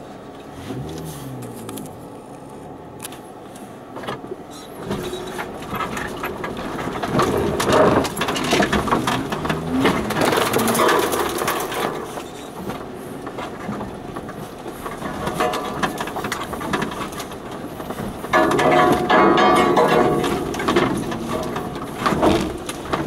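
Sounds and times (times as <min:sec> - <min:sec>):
vehicle body rattling over ruts: 0:00.0 - 0:23.0
undergrowth brushing and snapping: 0:05.4 - 0:23.0.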